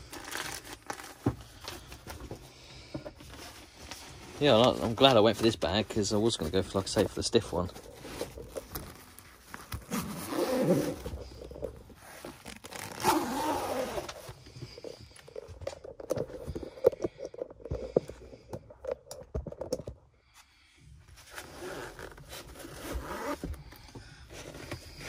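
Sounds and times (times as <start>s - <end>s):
carry bag rustling and crinkling: 3.6s - 18.0s.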